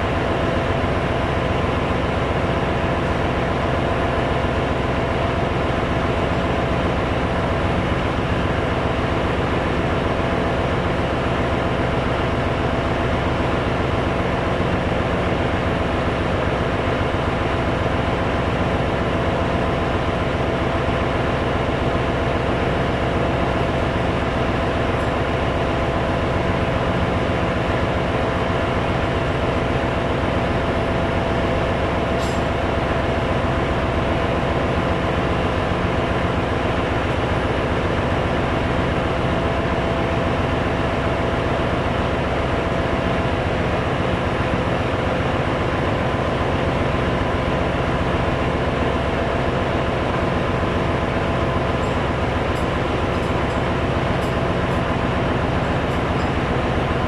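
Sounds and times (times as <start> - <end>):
engine room machinery drone: 0.0 - 57.0.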